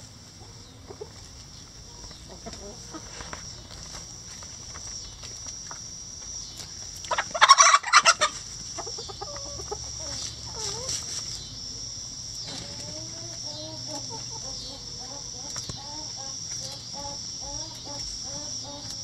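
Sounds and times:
chickens clucking softly: 0:00.3 - 0:03.3, 0:07.1 - 0:11.1, 0:12.5 - 0:19.0.

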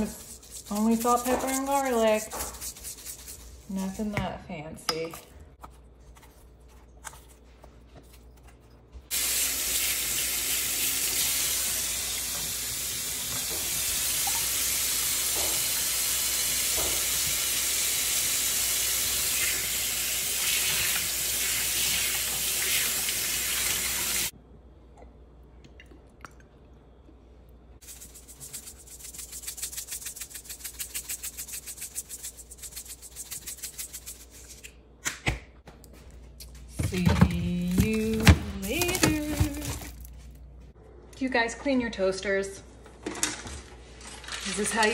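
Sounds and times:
seasoning shaker rattling: 0:00.0 - 0:03.7, 0:27.8 - 0:34.7.

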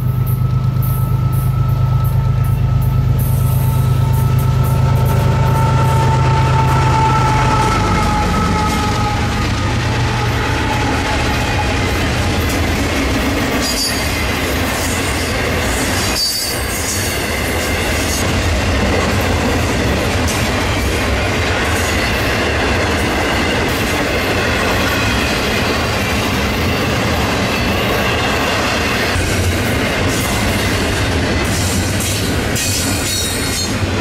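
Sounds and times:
train wheels rumbling on rails: 0:00.0 - 0:34.0
high wheel squeals: 0:00.4 - 0:12.8.

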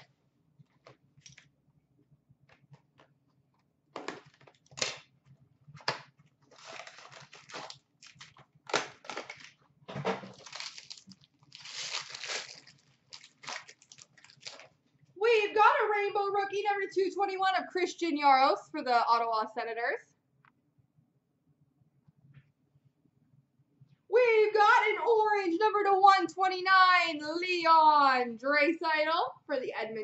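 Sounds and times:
plastic wrapper crinkling and tearing: 0:04.1 - 0:05.1, 0:05.8 - 0:14.8.

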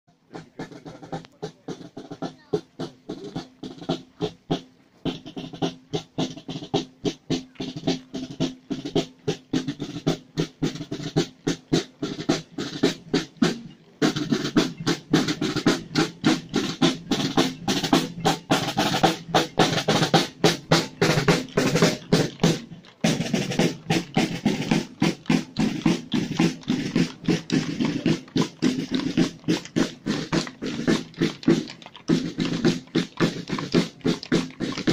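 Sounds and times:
marching snare drums: 0:00.1 - 0:34.9.

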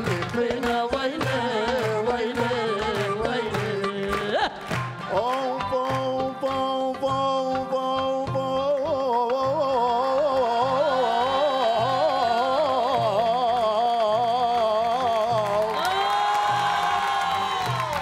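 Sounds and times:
drum strikes: 0:00.0 - 0:08.7.

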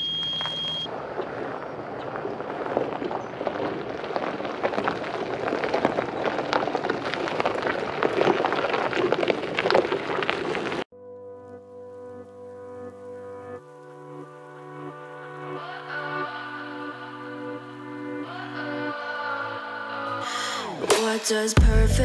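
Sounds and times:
tyres crunching over gravel: 0:00.2 - 0:10.9.

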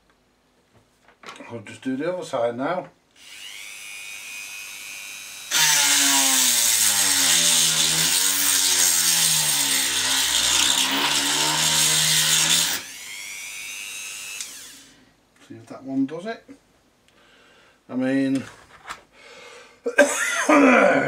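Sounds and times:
rotary tool cutting: 0:03.2 - 0:14.9.

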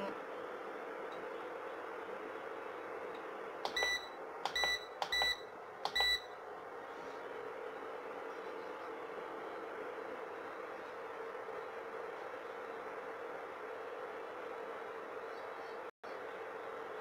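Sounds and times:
steady low hum: 0:00.0 - 0:17.0
cooktop control panel beeping: 0:03.6 - 0:06.4.

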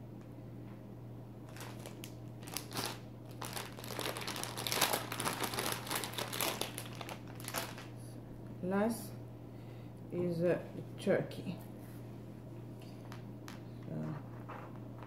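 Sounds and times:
plastic packaging crinkling: 0:01.4 - 0:08.1.

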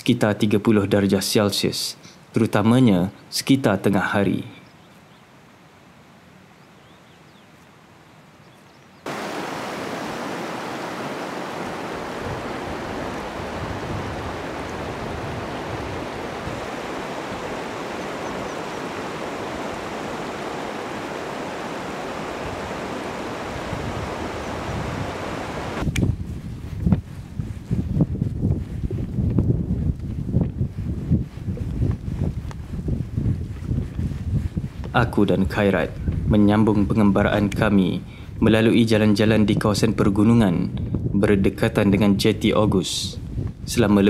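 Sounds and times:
stream rushing over stones: 0:09.1 - 0:25.8.

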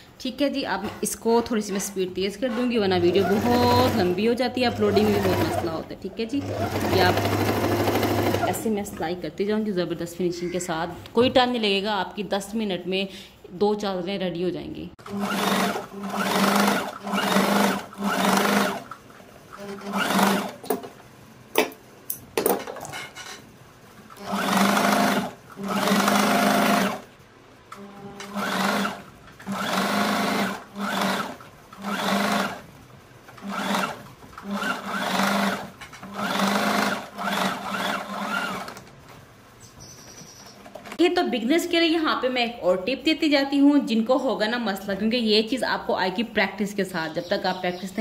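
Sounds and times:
sewing machine stitching: 0:00.8 - 0:08.7, 0:15.0 - 0:20.9, 0:24.1 - 0:27.1, 0:27.7 - 0:32.7, 0:33.3 - 0:38.8.

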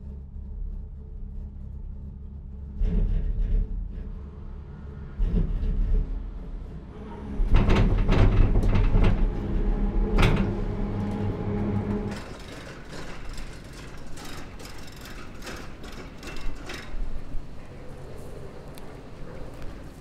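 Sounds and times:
cable car machinery rumble: 0:00.0 - 0:20.0
steady machinery hum: 0:00.0 - 0:20.0.

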